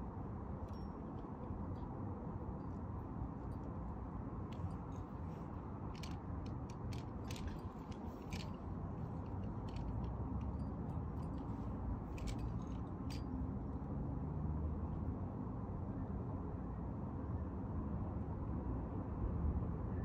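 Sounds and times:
climbing gear clicks and rustles: 4.5s - 13.3s.

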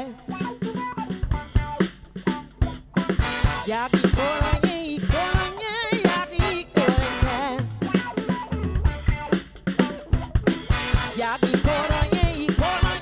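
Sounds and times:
bass guitar: 0.0s - 13.0s
drum kit beat: 0.0s - 13.0s
brass and saxophone: 3.0s - 9.4s, 10.1s - 13.0s.

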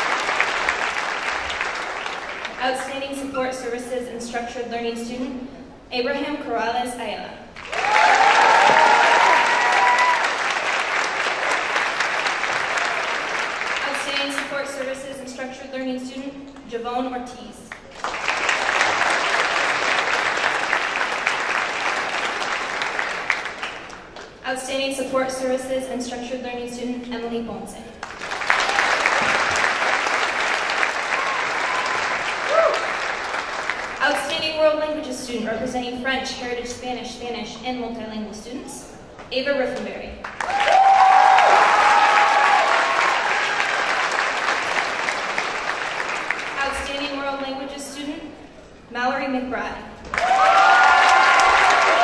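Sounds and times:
large audience applauding: 0.0s - 2.6s, 7.6s - 14.2s, 17.7s - 24.4s, 28.0s - 34.3s, 40.2s - 47.1s, 50.1s - 52.0s.

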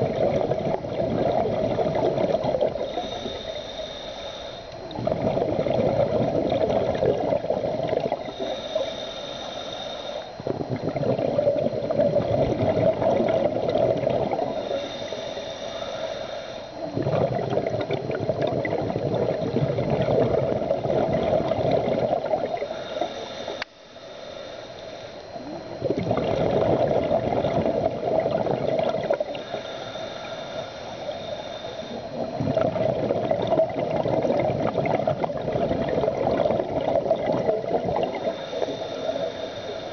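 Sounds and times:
bubbling exhale underwater: 0.0s - 3.5s, 4.9s - 8.9s, 10.4s - 16.0s, 16.8s - 23.1s, 25.3s - 39.7s
regulator hissing inhale: 2.2s - 5.0s, 8.1s - 10.8s, 13.5s - 17.1s, 22.4s - 25.7s, 29.0s - 33.0s, 36.5s - 39.9s.

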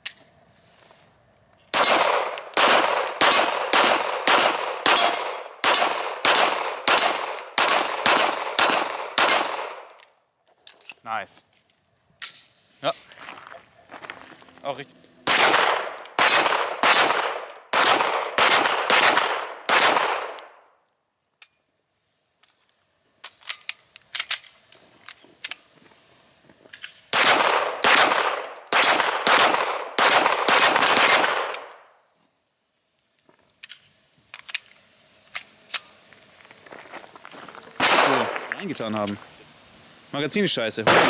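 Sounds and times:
gun handling clicks: 0.0s - 0.3s, 19.3s - 21.7s, 22.4s - 25.7s, 30.6s - 31.9s, 33.1s - 36.0s
pistol shots: 1.7s - 9.9s, 15.2s - 20.5s, 27.1s - 31.8s, 37.8s - 38.5s.

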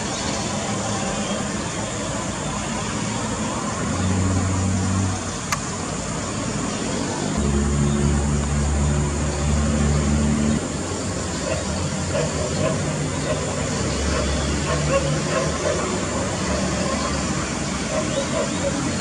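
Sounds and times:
low engine hum: 3.4s - 17.7s.

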